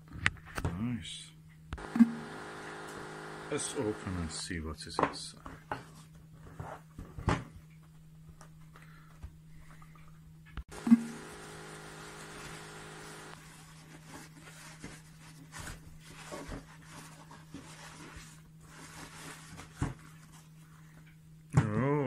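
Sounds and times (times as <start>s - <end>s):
steady low hum: 1.0s - 4.6s, 8.1s - 13.7s
tissue paper rustling: 13.4s - 20.5s.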